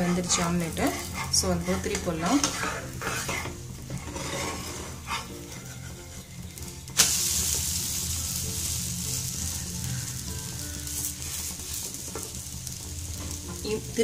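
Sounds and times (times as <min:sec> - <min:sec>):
egg sizzling in oil: 0:00.0 - 0:14.0.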